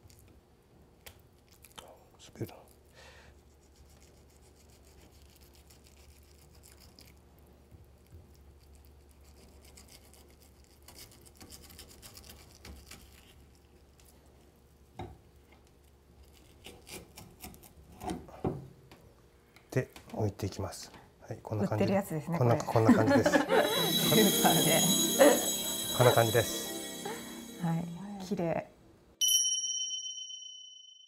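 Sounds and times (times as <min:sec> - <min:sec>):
knife scraping fish skin: 0:09.3 - 0:13.6, 0:16.2 - 0:18.1.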